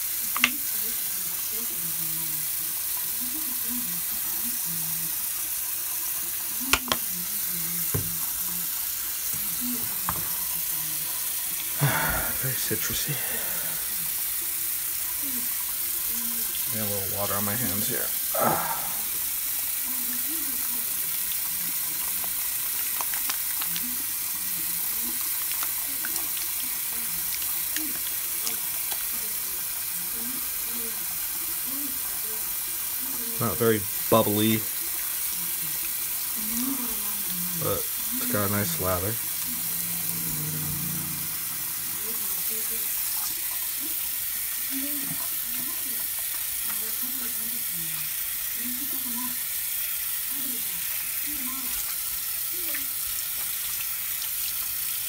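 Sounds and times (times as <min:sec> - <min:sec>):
water running from sink tap: 0:00.0 - 0:55.0
soapy hands lathering: 0:11.0 - 0:19.8.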